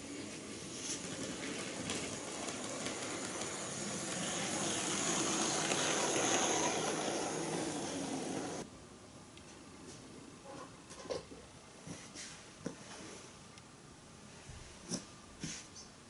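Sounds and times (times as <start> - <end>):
model train wheels rumbling on rail: 0.0 - 8.6
faint high motor whine: 0.0 - 9.4.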